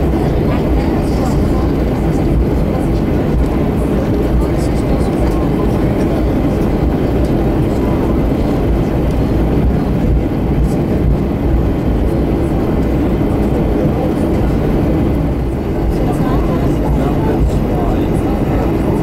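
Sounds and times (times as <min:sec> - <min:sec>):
aircraft cabin low rumble: 0:00.0 - 0:19.0.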